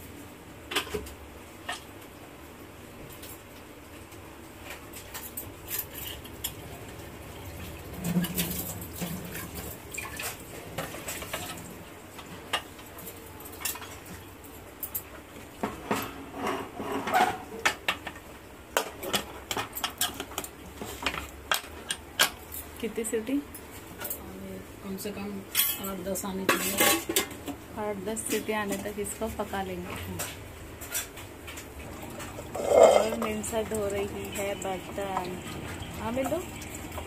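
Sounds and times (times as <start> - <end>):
metal pots clattering: 7.9 - 11.7, 25.5 - 27.6, 30.2 - 37.0.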